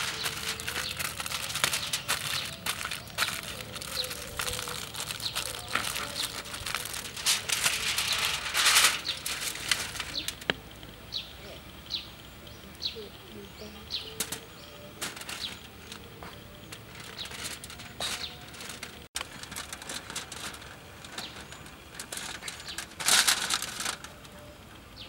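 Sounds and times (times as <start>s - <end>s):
aluminium foil crackling: 0.0s - 11.0s, 13.0s - 24.5s
bird chirping: 0.0s - 19.1s.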